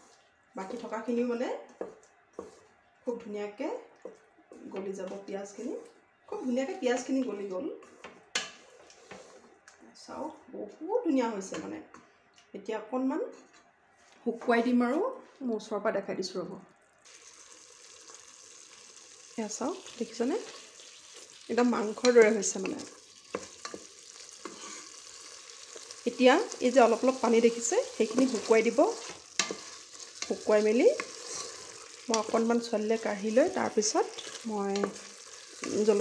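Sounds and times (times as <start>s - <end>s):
wooden spatula scraping pot: 0.0s - 1.1s, 1.7s - 3.4s, 7.0s - 9.6s, 19.8s - 36.0s
faint sizzle: 0.0s - 36.0s.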